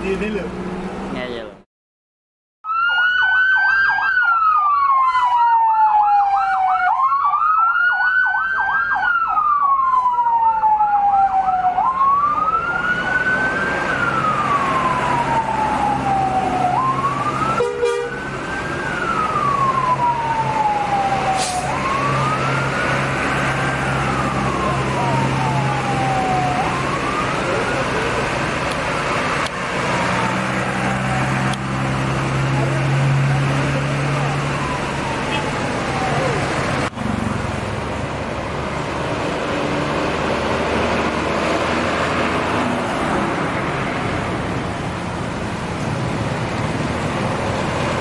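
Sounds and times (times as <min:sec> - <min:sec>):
bus engines humming: 0:00.0 - 0:01.6, 0:09.3 - 0:48.0
fast-warbling siren: 0:02.6 - 0:28.2, 0:34.1 - 0:36.5
siren slow wail: 0:02.6 - 0:36.9.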